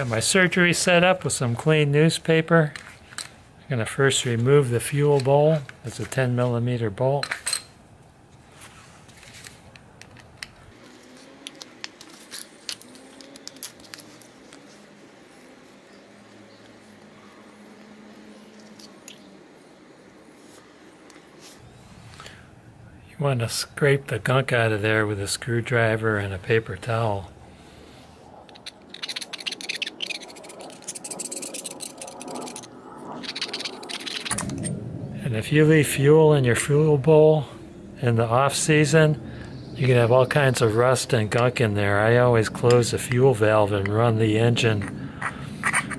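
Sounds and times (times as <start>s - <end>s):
screwdriver scraping metal bowl: 28.5s - 34.6s, 45.2s - 45.9s.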